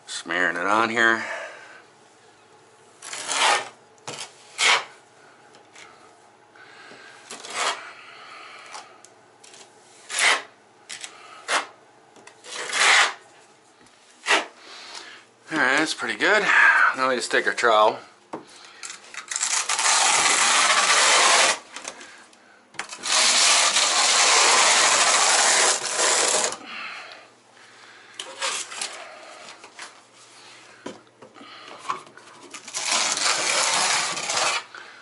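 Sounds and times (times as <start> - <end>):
trowel scraping mortar: 3.0 - 4.9, 7.3 - 7.8, 9.5 - 11.8, 12.4 - 13.2, 14.2 - 14.6, 19.2 - 21.6, 22.8 - 26.6, 32.6 - 34.7.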